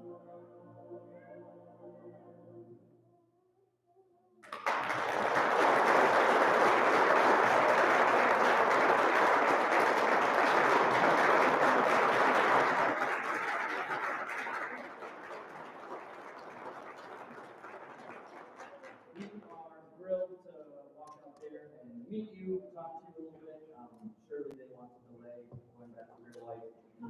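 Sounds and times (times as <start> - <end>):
audience applauding: 4.4 - 19.5.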